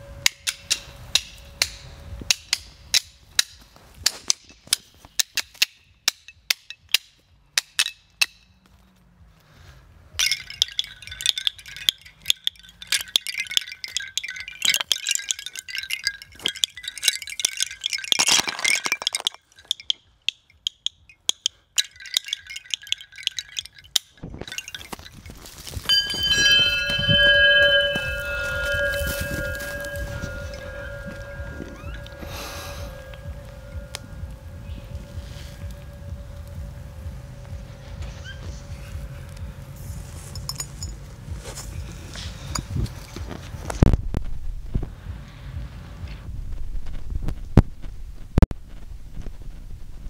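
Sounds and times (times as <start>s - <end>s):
metal chimes clinking and jangling: 10.1s - 43.8s
held ringing tone: 10.2s - 39.2s.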